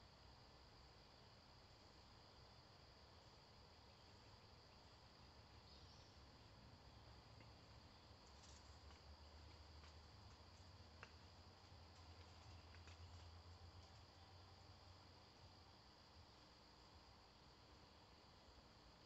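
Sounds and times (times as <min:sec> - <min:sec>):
crickets chirping: 0:00.0 - 0:19.0
faint ticks: 0:07.3 - 0:14.2.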